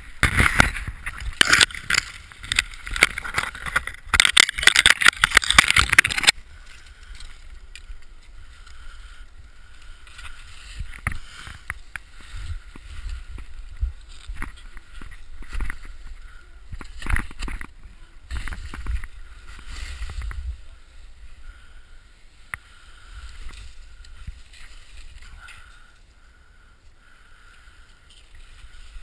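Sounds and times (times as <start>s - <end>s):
scattered ticks: 1.1s - 17.7s.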